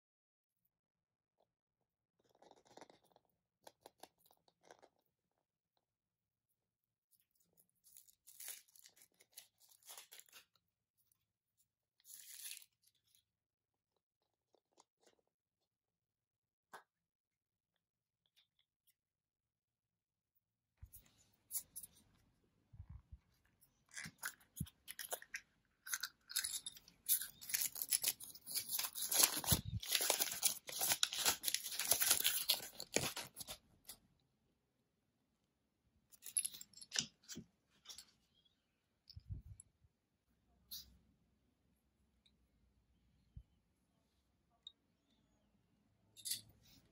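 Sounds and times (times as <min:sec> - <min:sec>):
foil wrapper crinkling and tearing: 0:07.8 - 0:10.6, 0:12.0 - 0:12.9, 0:24.0 - 0:33.6
paper leaflet rustling: 0:27.4 - 0:33.6.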